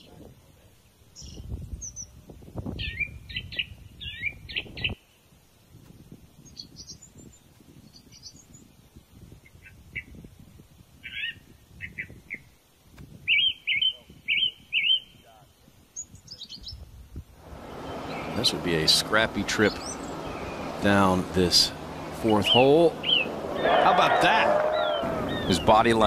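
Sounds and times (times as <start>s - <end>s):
songbirds chirping and twittering: 0.0s - 26.0s
low rumbling noise: 17.2s - 26.0s.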